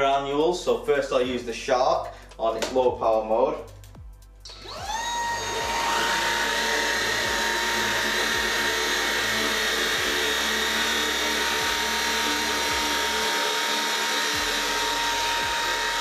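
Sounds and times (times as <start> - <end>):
vacuum cleaner motor whining: 4.5 - 16.0.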